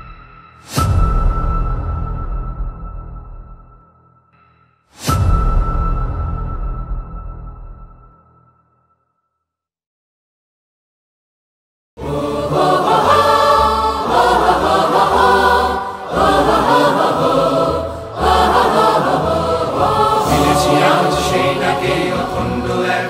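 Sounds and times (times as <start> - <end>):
group of voices singing: 12.0 - 23.0.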